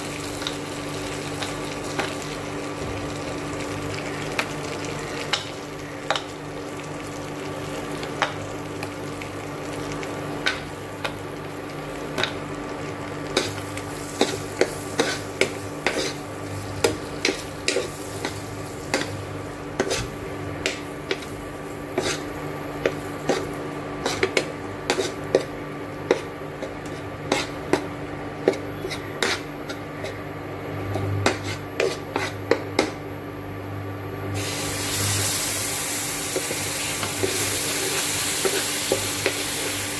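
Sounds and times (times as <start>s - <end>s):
steady hum: 0.0s - 39.9s
metal spoon scraping pan: 13.4s - 16.2s, 19.8s - 20.1s, 22.0s - 22.3s, 28.4s - 30.2s.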